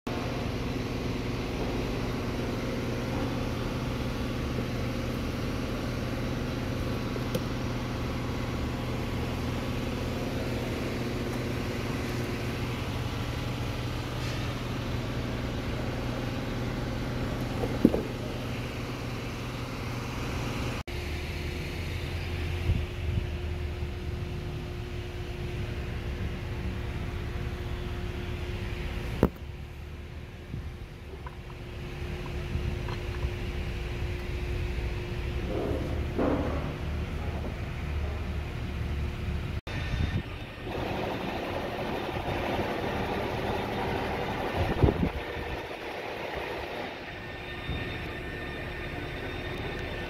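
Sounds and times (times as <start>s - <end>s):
machine humming: 39.7s - 50.0s.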